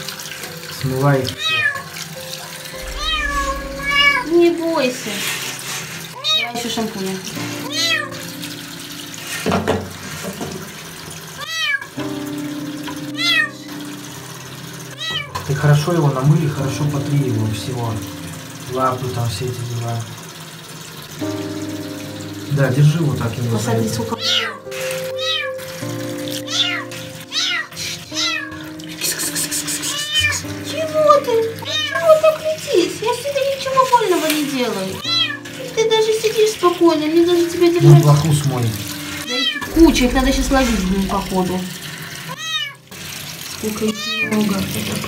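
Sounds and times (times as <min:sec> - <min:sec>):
background music: 0:00.0 - 0:09.5, 0:12.0 - 0:19.5, 0:21.1 - 0:43.1
running shower water: 0:00.0 - 0:45.0
kitten meowing: 0:01.4 - 0:01.9, 0:02.8 - 0:04.3, 0:06.2 - 0:06.6, 0:07.7 - 0:08.2, 0:11.4 - 0:11.9, 0:13.2 - 0:13.6, 0:15.0 - 0:15.4, 0:24.2 - 0:25.6, 0:26.5 - 0:28.6, 0:29.9 - 0:30.4, 0:31.6 - 0:32.2, 0:35.0 - 0:35.4, 0:39.3 - 0:41.4, 0:42.4 - 0:42.8, 0:43.9 - 0:44.3.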